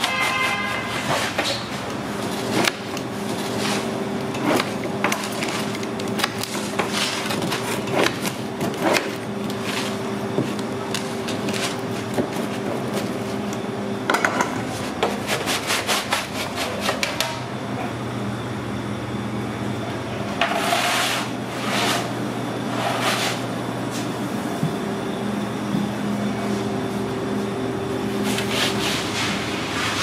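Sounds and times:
pizza peel scraping oven stone: 0.0s - 13.5s, 14.5s - 17.3s, 20.4s - 23.5s, 28.1s - 30.0s
machine hum: 0.0s - 30.0s.

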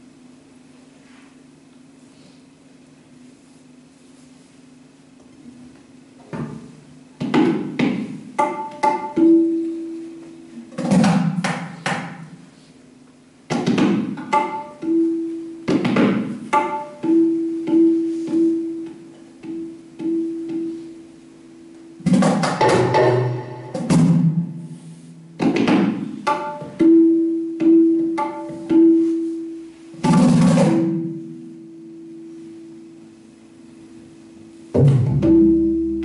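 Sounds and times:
tabla strokes: 7.2s - 10.1s, 13.5s - 21.0s, 22.0s - 31.6s, 34.7s - 36.0s.

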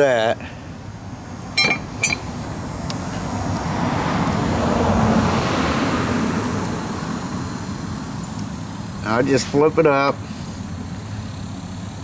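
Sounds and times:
road vehicle passing: 0.6s - 9.5s.

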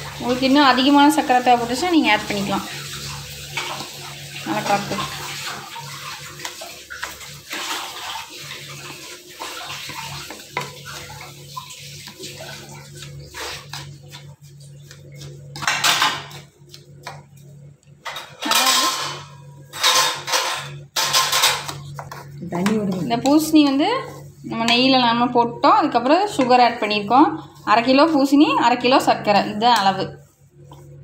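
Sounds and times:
spatula scraping a pan: 2.4s - 16.6s, 18.4s - 31.0s.

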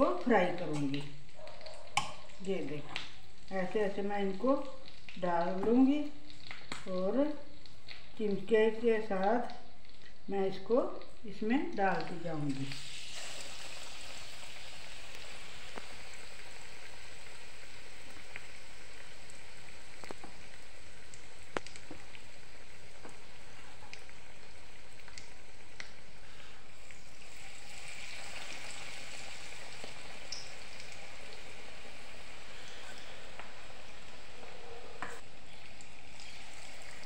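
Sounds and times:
deep-frying sizzle with pops: 0.0s - 37.0s.

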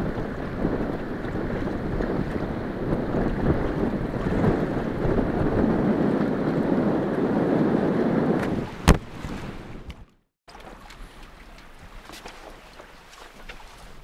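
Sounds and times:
wind buffeting microphone: 0.0s - 10.2s
choppy water: 0.0s - 14.0s.

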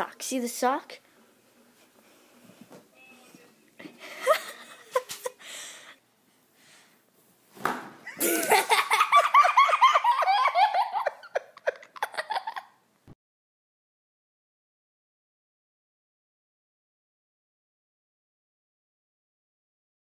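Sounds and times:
person laughing hard: 8.1s - 12.8s.

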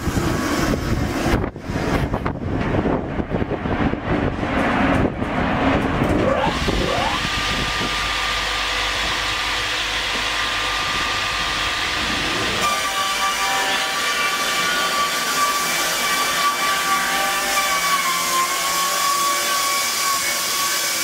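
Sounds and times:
band sawmill whining: 0.0s - 21.0s.

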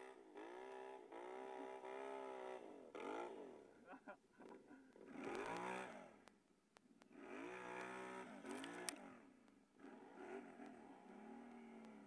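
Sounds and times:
atv engine revving: 0.0s - 3.8s, 4.4s - 12.0s
tyres churning through snow: 5.0s - 6.2s, 7.0s - 12.0s.

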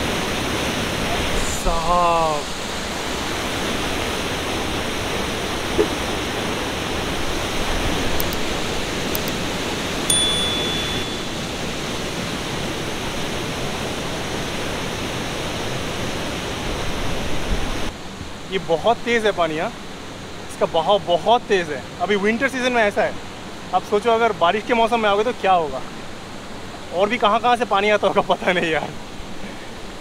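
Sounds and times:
waterfall rushing: 0.0s - 17.9s
short high beep: 10.1s - 11.4s.

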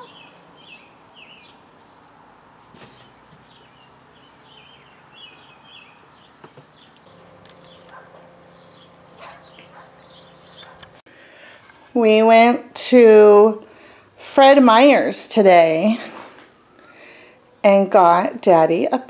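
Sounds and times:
birds chirping: 0.0s - 11.0s
faint steady hum: 7.0s - 14.5s.

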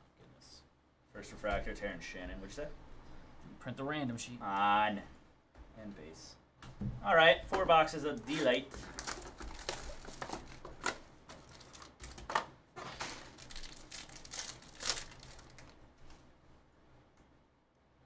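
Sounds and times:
card wrapper crinkling and tearing: 8.2s - 15.8s.

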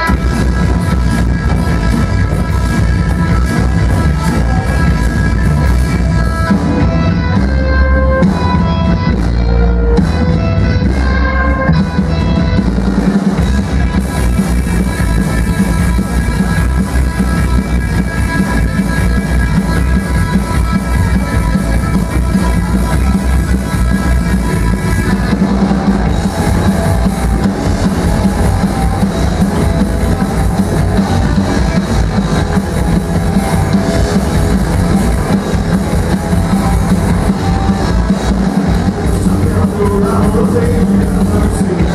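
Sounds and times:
electric guitar: 0.0s - 41.9s
drum kit with cymbals: 11.7s - 41.9s.

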